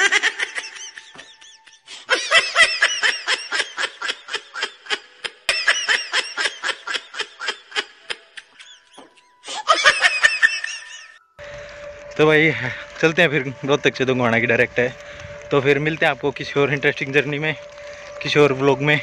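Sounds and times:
high-pitched giggling laugh: 0:00.0 - 0:11.2.

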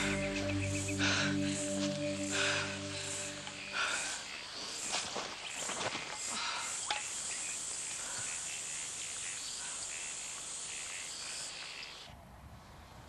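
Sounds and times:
short high chirps: 0:00.0 - 0:03.8
insects chirring: 0:00.0 - 0:12.1.

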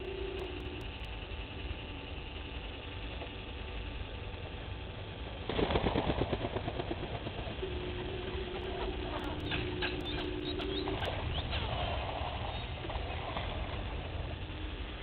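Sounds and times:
steady low hum: 0:00.0 - 0:15.0
bird wingbeats taking off: 0:05.4 - 0:07.7.

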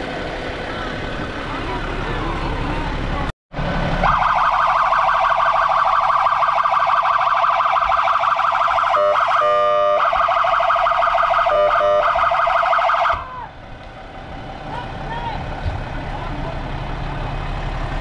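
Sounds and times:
electronic siren warbling: 0:04.0 - 0:13.2.

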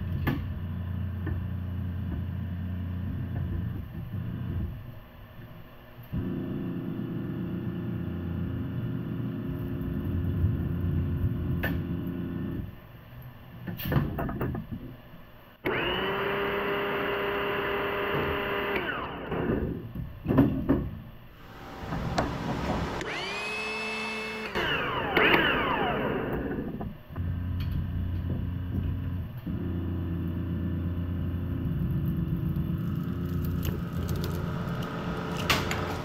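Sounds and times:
electric motor spinning: 0:21.4 - 0:26.8, 0:32.6 - 0:36.0
low machine drone: 0:21.4 - 0:36.0.

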